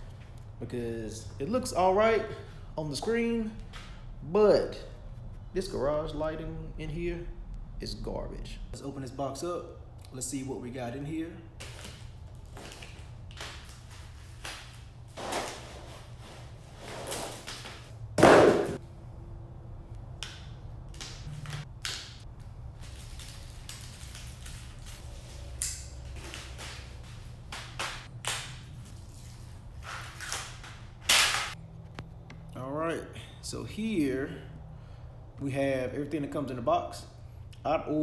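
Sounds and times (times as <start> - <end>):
unpacking rustles and clatters: 22.8 - 27.3.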